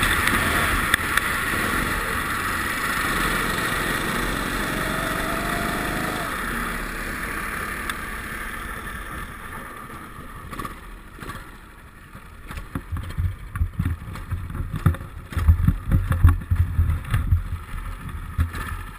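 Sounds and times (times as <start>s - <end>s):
kart engine: 0.0s - 17.8s
low thumps and rumbles: 9.1s - 18.9s.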